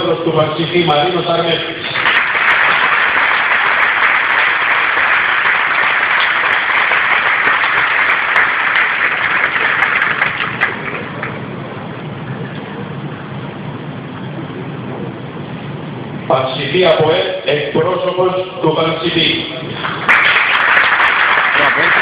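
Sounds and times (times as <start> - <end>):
stadium crowd clapping: 1.8 - 11.5, 19.8 - 22.0.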